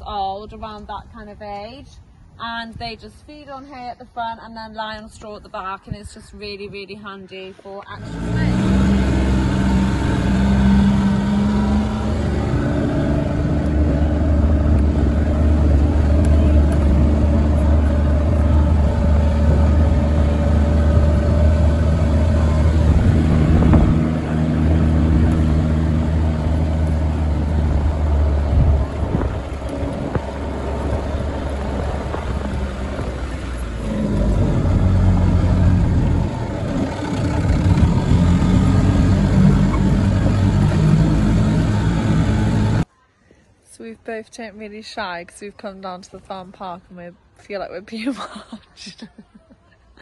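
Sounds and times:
vehicle engine drone: 7.8 - 42.9.

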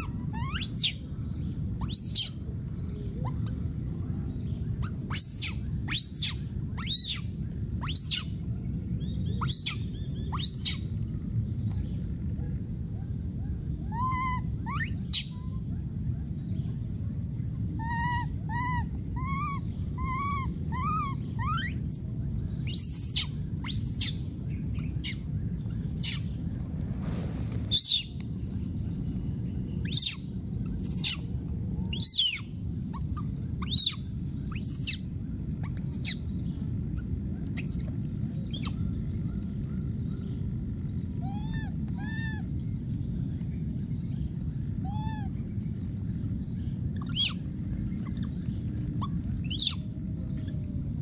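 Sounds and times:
infant monkey squealing: 0.0 - 1.0, 1.8 - 2.4, 4.8 - 8.3, 9.4 - 10.8, 13.9 - 15.4, 17.8 - 22.0, 22.7 - 24.2, 29.9 - 30.2, 30.8 - 31.2, 31.9 - 32.5, 33.6 - 35.0, 35.7 - 36.2, 41.2 - 42.4, 44.9 - 45.3, 47.0 - 47.4, 49.0 - 49.8
low background noise: 0.0 - 51.0
infant monkey cooing: 17.8 - 22.0, 41.2 - 42.4.

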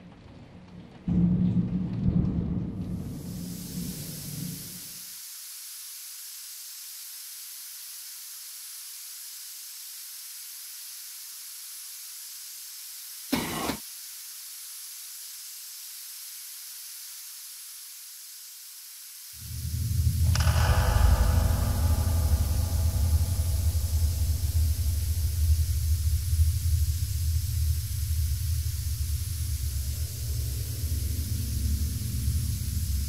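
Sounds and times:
loud burst of noise: 2.6 - 33.0
high hiss of escaping air: 3.0 - 33.0
deep low rumble: 19.4 - 33.0
low rumble: 19.4 - 33.0.

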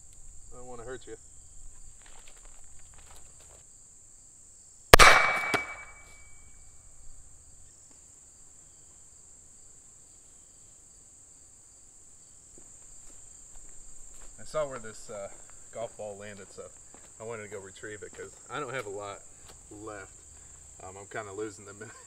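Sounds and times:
insects buzzing: 0.0 - 22.0
pistol shot: 4.9 - 6.3.

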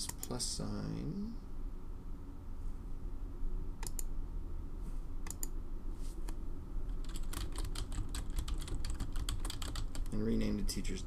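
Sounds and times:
clicks: 3.8 - 4.1, 5.2 - 5.6
typing on a keyboard: 6.9 - 10.2.

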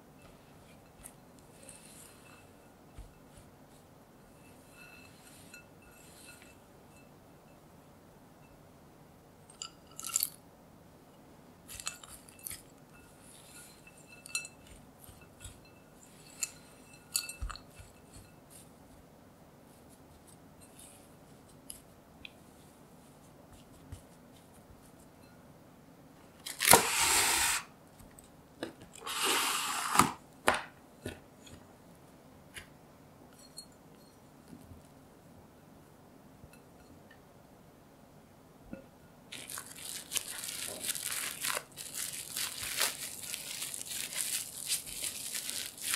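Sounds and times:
spatula scraping dough in glass bowl: 0.2 - 6.7
spatula clinking against glass: 11.7 - 18.4.

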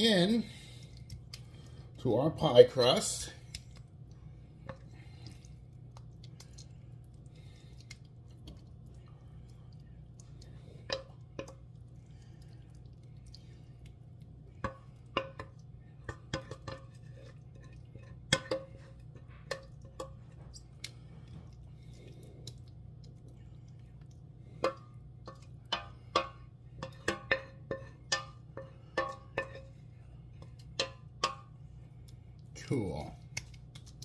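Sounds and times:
low steady hum: 0.0 - 34.0
wooden spoon knocking on metal pot: 10.8 - 11.6, 14.5 - 20.4, 24.6 - 29.8, 30.4 - 31.6.

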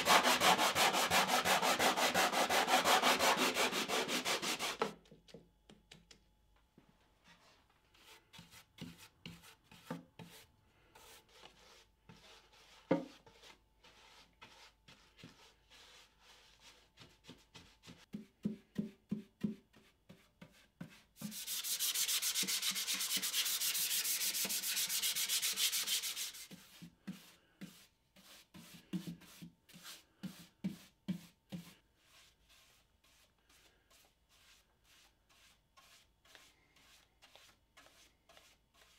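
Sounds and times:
paintbrush swishing on wood: 20.4 - 38.9.

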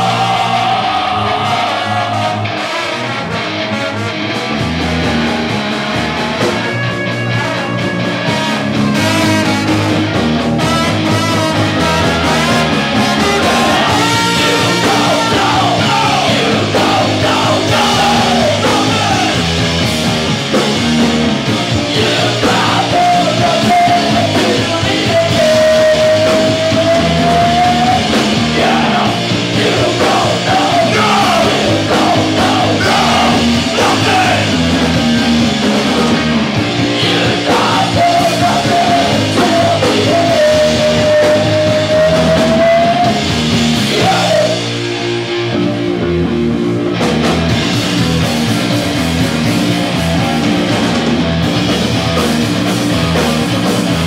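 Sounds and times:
bass: 0.0 - 54.0
drums: 0.0 - 54.0
electric guitar: 0.0 - 54.0
horn section with saxophone: 1.2 - 4.4, 6.6 - 9.9, 10.6 - 15.6.

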